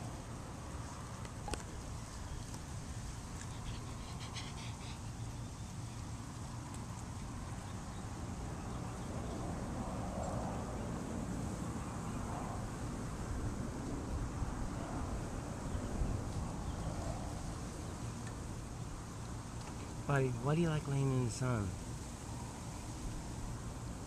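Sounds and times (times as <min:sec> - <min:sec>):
wind rumbling on microphone: 0:06.1 - 0:20.1.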